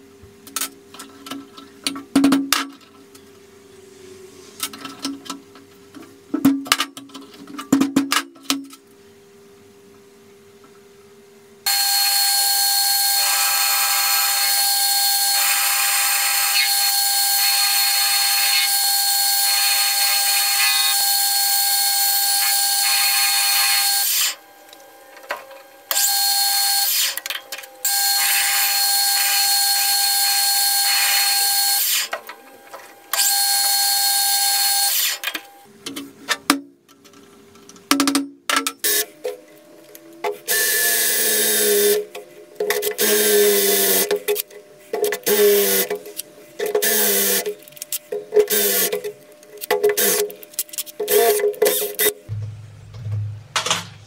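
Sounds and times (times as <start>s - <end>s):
metal lathe whining: 11.7s - 24.4s
sharp metal clanks and knocks: 52.3s - 54.0s.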